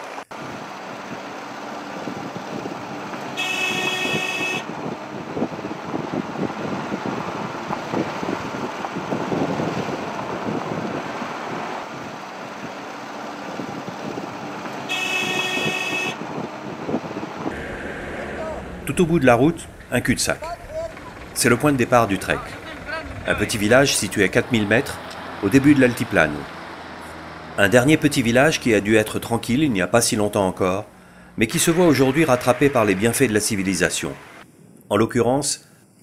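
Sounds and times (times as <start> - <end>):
minibus rumbling and rattling: 0.0 - 34.5
vehicle horn blasts: 3.3 - 4.7, 14.8 - 16.2.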